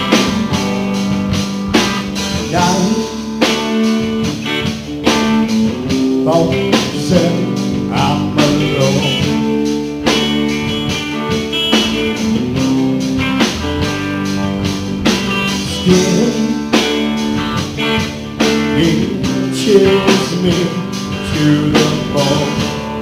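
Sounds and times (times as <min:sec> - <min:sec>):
electric guitars: 0:00.0 - 0:23.0
steady drum beat: 0:00.0 - 0:23.0
harmonica into a microphone: 0:10.1 - 0:12.4.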